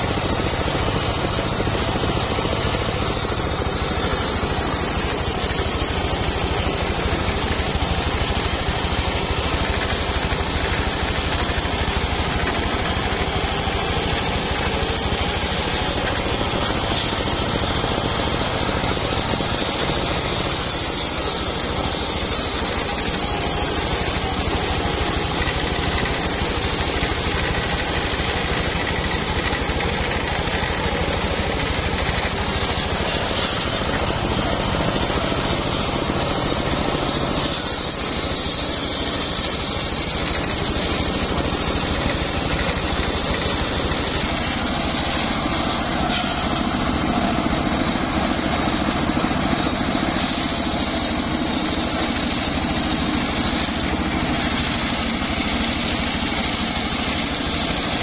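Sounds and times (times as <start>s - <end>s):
circular saw blade ripping wood: 37.3s - 46.8s.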